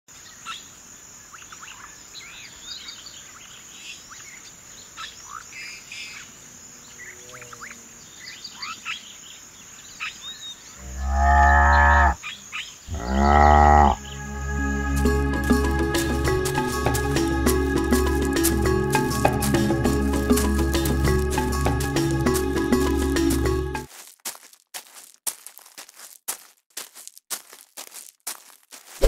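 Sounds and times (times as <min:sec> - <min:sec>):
insect hiss: 0:00.1 - 0:23.4
birds chirping: 0:01.3 - 0:23.7
loud drawn-out moo calls: 0:10.8 - 0:12.2, 0:12.9 - 0:14.1.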